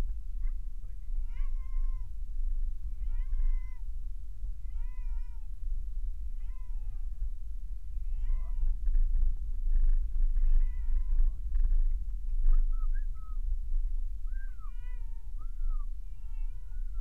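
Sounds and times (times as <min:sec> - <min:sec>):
short wavering high cries: 0:14.2 - 0:17.0.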